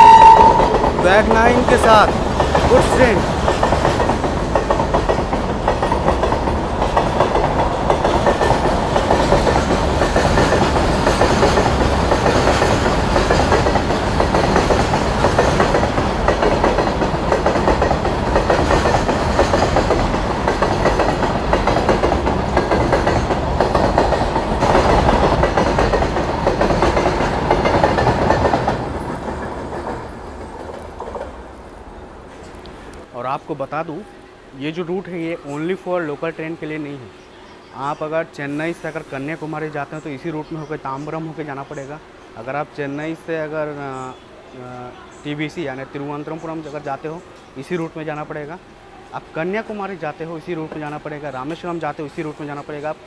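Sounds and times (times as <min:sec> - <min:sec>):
train wagons rattling over rails: 0:00.0 - 0:33.7.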